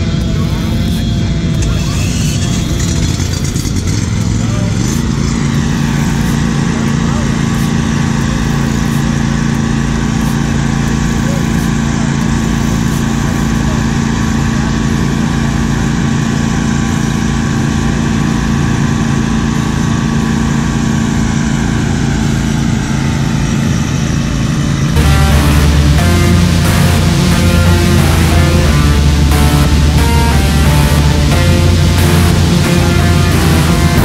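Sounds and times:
aerator engine running: 0.0s - 34.0s
music: 25.0s - 34.0s.

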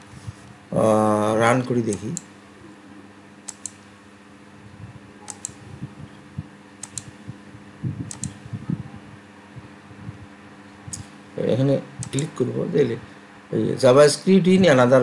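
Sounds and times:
faint steady hum: 0.0s - 15.0s
mouse clicking: 3.5s - 3.8s, 5.3s - 5.6s, 6.8s - 7.1s, 8.1s - 8.4s.

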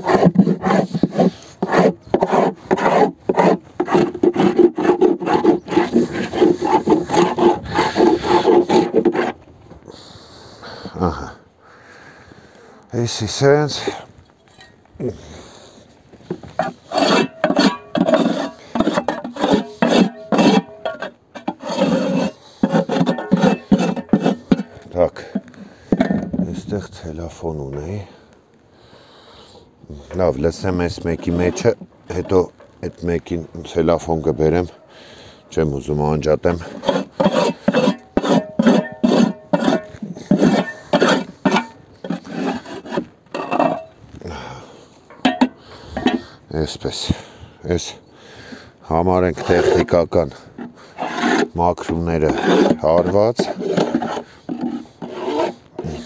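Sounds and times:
metal scraper rasping on wood: 0.0s - 9.4s, 16.5s - 26.1s, 36.6s - 43.9s, 49.3s - 56.0s.

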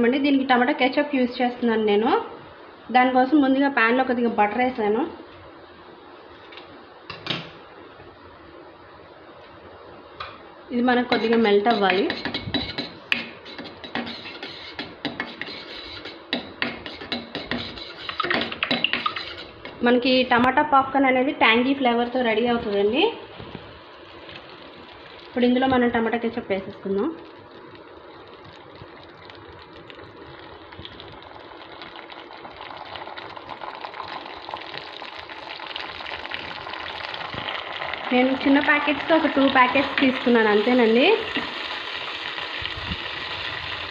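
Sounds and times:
butter sizzling in a pan: 10.8s - 19.8s, 23.8s - 43.9s
spatula scraping metal pan: 11.1s - 19.8s.

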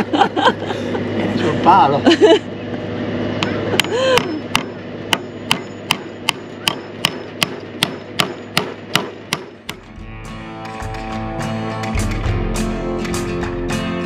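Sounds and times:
hammer driving nails into wood: 5.5s - 9.9s
acoustic guitar music: 9.6s - 14.0s.

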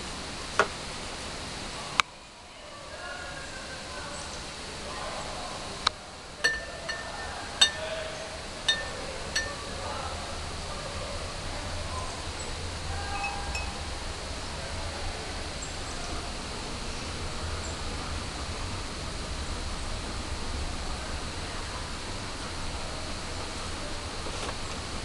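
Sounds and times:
outdoor hiss: 0.0s - 25.0s
light high-pitched clinks: 6.4s - 8.0s, 8.7s - 9.6s.

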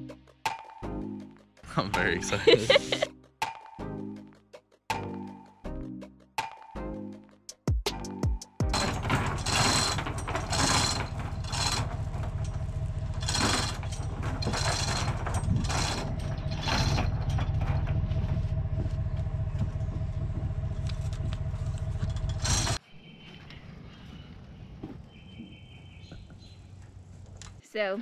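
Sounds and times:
rattling hoist chain: 8.7s - 18.2s, 21.8s - 22.8s
steady low rumble: 8.7s - 22.8s.

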